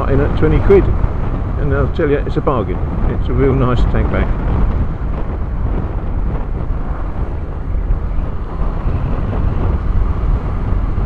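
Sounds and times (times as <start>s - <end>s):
road noise: 0.0s - 11.0s
wind rumble on microphone: 0.0s - 11.0s
motorcycle engine running: 4.2s - 11.0s.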